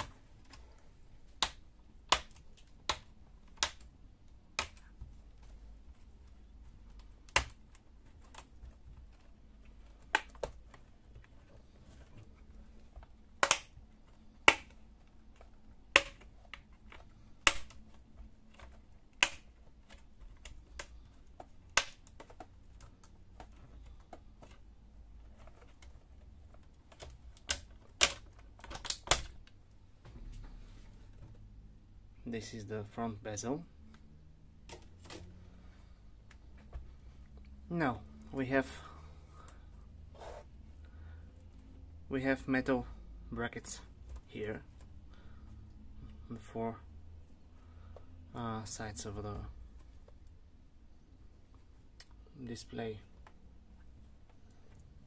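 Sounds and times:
plastic clips popping: 0:00.0 - 0:05.6, 0:06.4 - 0:11.4, 0:12.5 - 0:29.8.

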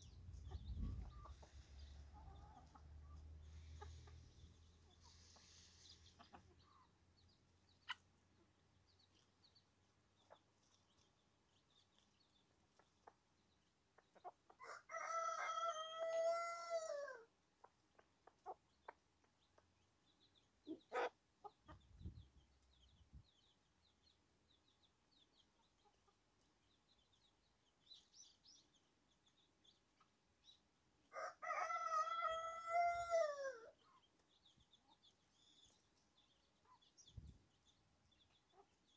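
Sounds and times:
chicks peeping: 0:00.0 - 0:38.9
rooster crowing: 0:14.6 - 0:17.2, 0:31.1 - 0:33.7.

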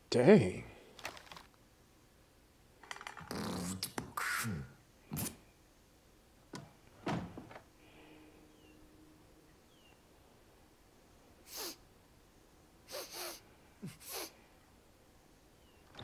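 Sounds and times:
faint steady tone: 0:07.7 - 0:16.0.

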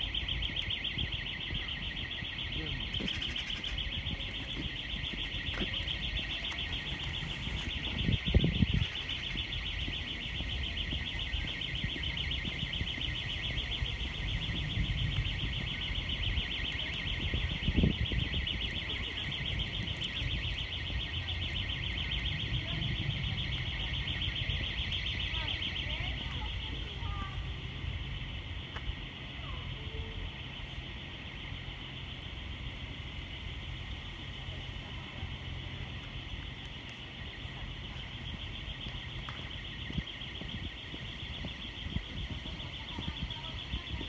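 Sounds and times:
alarm ringing: 0:00.0 - 0:28.3, 0:37.1 - 0:44.0.

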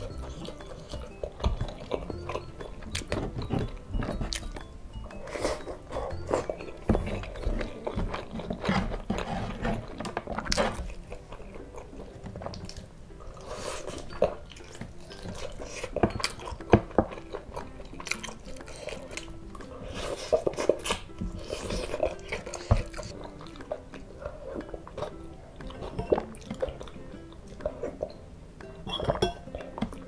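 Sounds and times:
chewing and mouth clicks: 0:00.0 - 0:30.0
fingers scraping wooden tray: 0:05.5 - 0:11.0.

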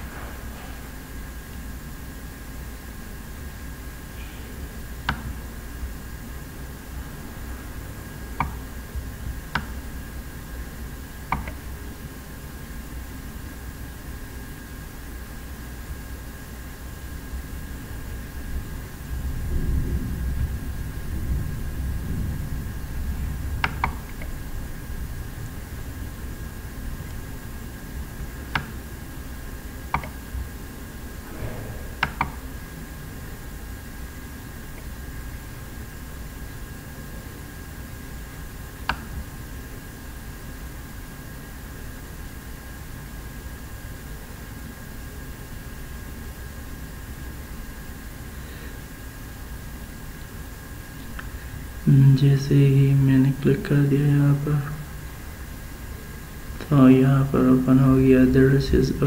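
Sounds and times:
steady low hum and hiss: 0:00.0 - 0:59.0
computer mouse clicks: 0:09.5 - 0:09.7, 0:11.3 - 0:11.6, 0:23.6 - 0:24.3, 0:28.5 - 0:28.8, 0:29.9 - 0:30.2, 0:32.0 - 0:32.4, 0:38.9 - 0:39.1.

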